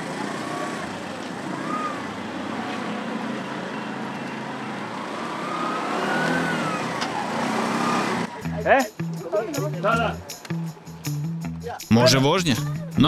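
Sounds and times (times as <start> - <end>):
small engine running: 0.0 - 3.3.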